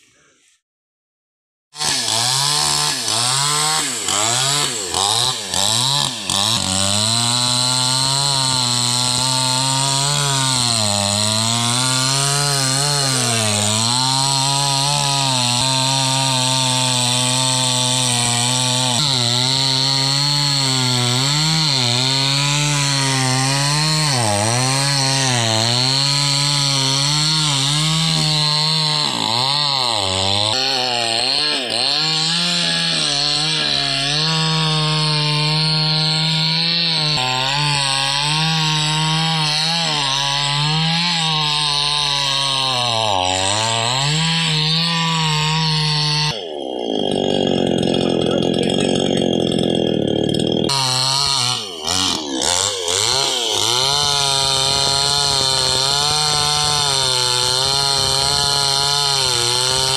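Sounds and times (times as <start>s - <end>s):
chainsaw cutting wood: 1.8s - 59.9s
chainsaw throttle blips: 43.0s - 59.9s.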